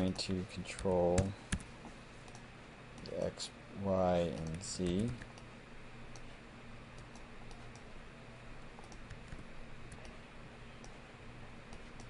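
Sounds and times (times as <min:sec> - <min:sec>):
steady low hum: 0:00.0 - 0:12.0
keyboard and mouse clicks: 0:04.2 - 0:05.5, 0:08.8 - 0:10.2, 0:11.7 - 0:12.0.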